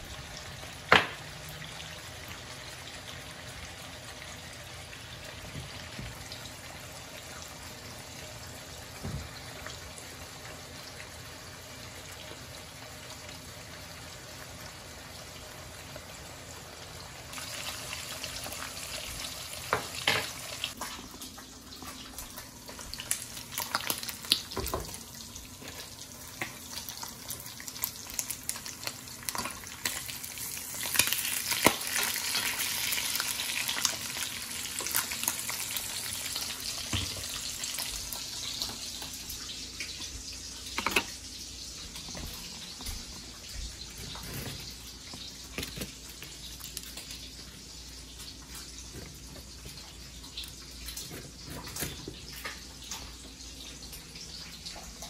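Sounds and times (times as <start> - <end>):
meat sizzling in a skillet: 0.0 - 42.7.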